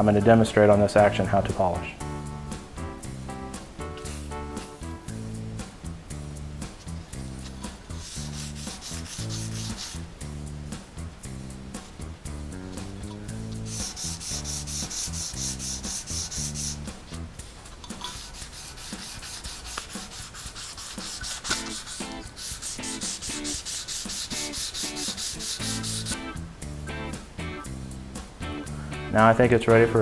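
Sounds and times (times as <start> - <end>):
abrasive paper rubbing on metal: 4.0 - 4.8, 6.8 - 10.1, 12.7 - 26.2.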